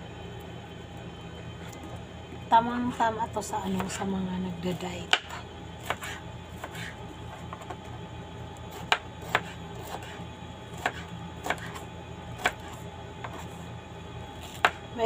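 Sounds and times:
knife chopping on cutting board: 5.1s - 7.8s, 8.7s - 10.2s, 10.8s - 11.8s, 12.4s - 13.6s, 14.4s - 14.8s.

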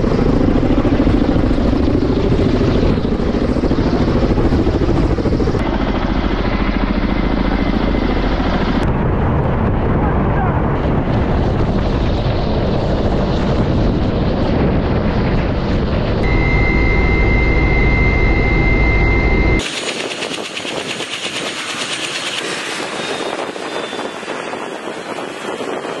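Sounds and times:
helicopter rotor and engine: 0.0s - 26.0s
high whine: 13.6s - 26.0s.

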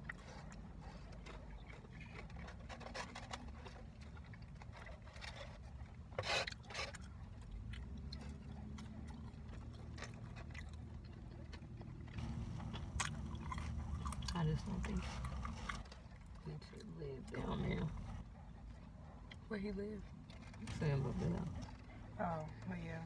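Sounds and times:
person chewing and lip smacking: 0.0s - 16.9s
low steady rumble: 0.0s - 23.0s.

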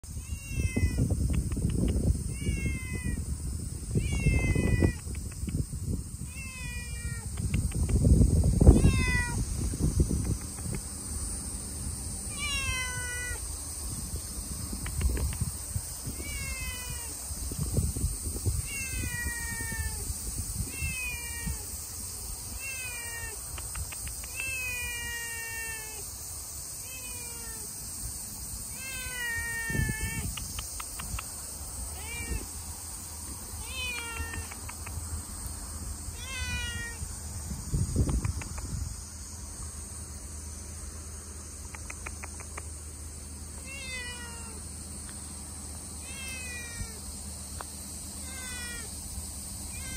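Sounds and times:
cat meowing: 0.2s - 1.1s, 2.3s - 3.2s, 3.9s - 5.0s, 6.2s - 7.3s, 8.6s - 9.4s, 12.3s - 13.4s, 16.1s - 17.2s, 18.6s - 21.7s, 22.6s - 23.4s, 24.3s - 26.0s, 26.8s - 27.7s, 28.7s - 30.3s, 31.9s - 32.5s, 33.6s - 34.7s, 36.1s - 37.0s, 43.6s - 44.6s, 46.0s - 47.0s, 48.2s - 48.9s.

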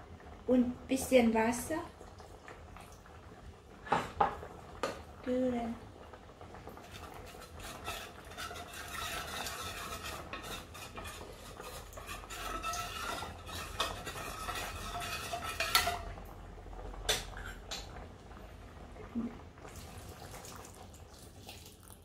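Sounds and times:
utensil stirring in a bowl: 6.8s - 16.1s.

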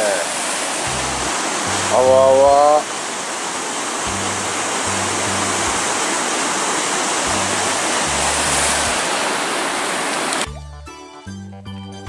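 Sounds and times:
river rapids rushing over rocks: 0.0s - 10.5s
low bass background music: 0.9s - 2.7s, 4.1s - 6.0s, 7.3s - 9.0s, 10.5s - 12.0s.

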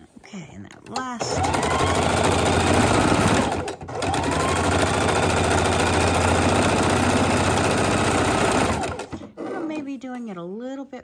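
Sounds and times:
sewing machine running: 0.8s - 9.6s.

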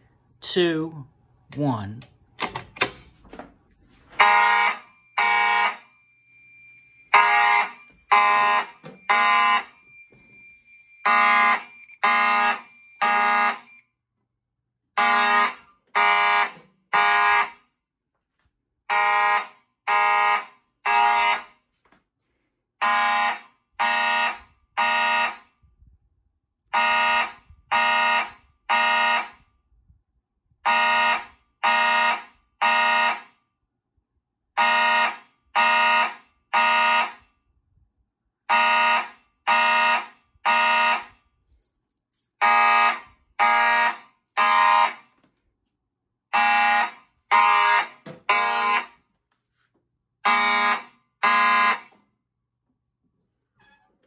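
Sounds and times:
fire alarm horns blasting: 4.1s - 14.0s, 14.9s - 17.6s, 18.8s - 21.6s, 22.8s - 25.6s, 26.7s - 29.5s, 30.6s - 33.4s, 34.6s - 37.3s, 38.5s - 41.2s, 42.4s - 45.1s, 46.3s - 49.0s, 50.2s - 52.0s.

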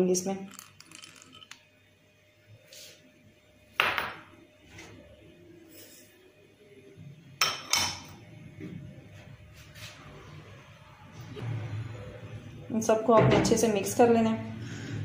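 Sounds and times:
glass bowls clinking: 0.4s - 1.6s.

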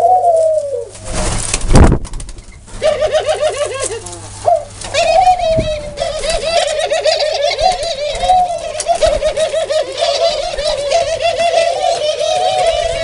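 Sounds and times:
doves cooing: 0.0s - 1.0s, 2.4s - 13.0s.

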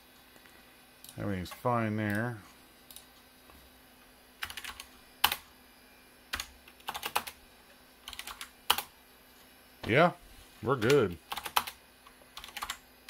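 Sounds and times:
typing on computer keyboard: 4.4s - 5.4s, 6.3s - 7.4s, 8.1s - 8.9s, 10.8s - 11.8s, 12.4s - 12.8s.

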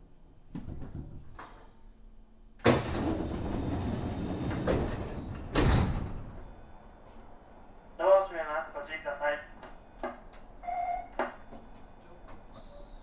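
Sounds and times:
loud door clunk: 2.6s - 6.4s
train doors sliding open: 2.6s - 7.2s.

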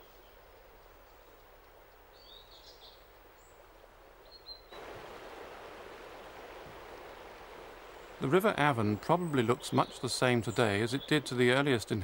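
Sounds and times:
river rushing over rocks: 4.8s - 8.6s.

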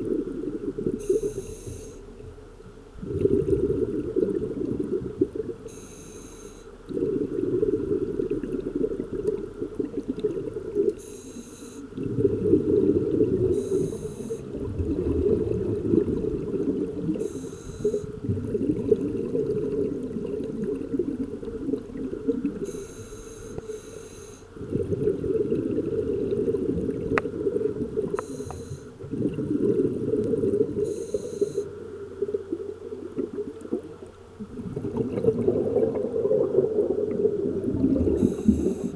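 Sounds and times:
exhaled air bubbling underwater: 0.0s - 38.9s
regulator inhale hiss: 1.0s - 2.1s, 5.7s - 6.8s, 11.0s - 11.9s, 13.5s - 14.5s, 17.2s - 18.2s, 22.6s - 24.5s, 28.2s - 29.0s, 30.8s - 31.7s, 38.1s - 38.9s.

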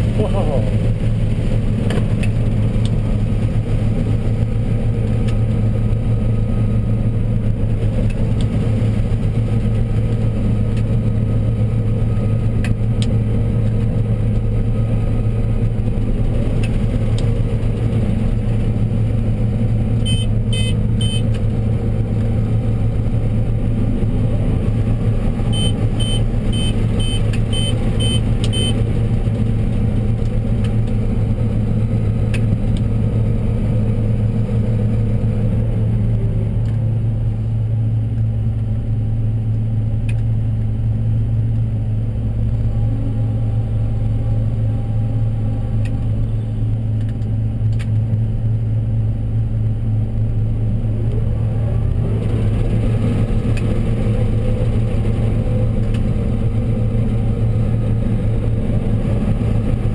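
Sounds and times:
combine engine and machinery drone: 0.0s - 59.9s
short high beeps: 20.1s - 21.2s, 25.5s - 28.8s.

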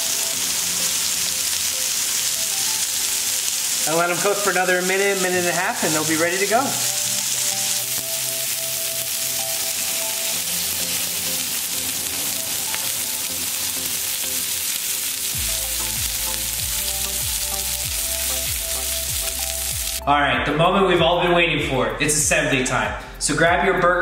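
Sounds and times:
patties sizzling on a griddle: 0.0s - 20.0s
background music with bass beat: 15.4s - 24.0s.

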